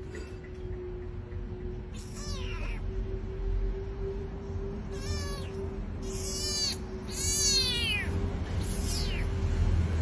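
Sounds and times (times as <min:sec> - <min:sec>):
kitten mewing: 0:01.9 - 0:02.8, 0:04.9 - 0:09.4.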